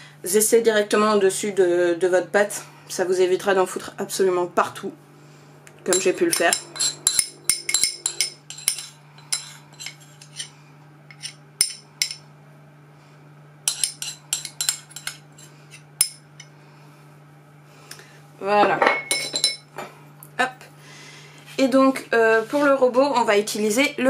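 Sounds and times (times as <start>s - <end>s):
low steady hum: 0.0s - 24.0s
spoon clinking on glass bowl: 5.9s - 9.5s.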